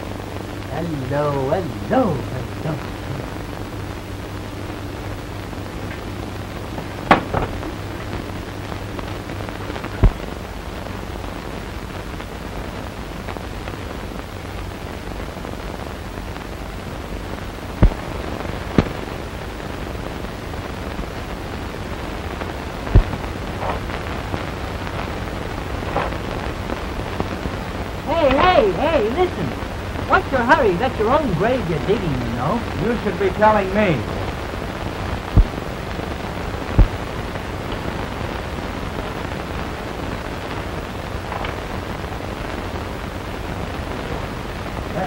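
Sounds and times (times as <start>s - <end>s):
film soundtrack hiss: 0.0s - 45.0s
clicks and pops: 6.8s - 8.2s, 9.8s - 10.3s, 17.8s - 18.2s, 22.9s - 24.0s, 35.2s - 35.8s, 36.7s - 37.9s.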